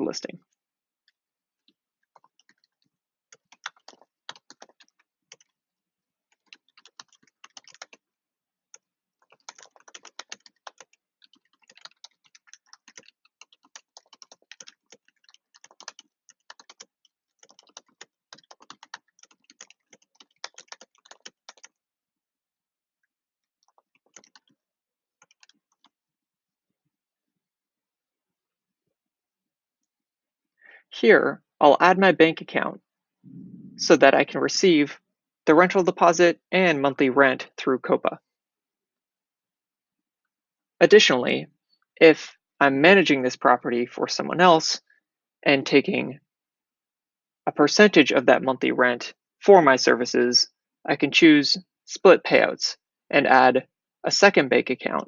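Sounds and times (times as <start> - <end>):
computer keyboard typing: 2.1 - 5.6, 6.3 - 8.0, 8.7 - 21.8, 23.6 - 24.6, 25.2 - 26.0.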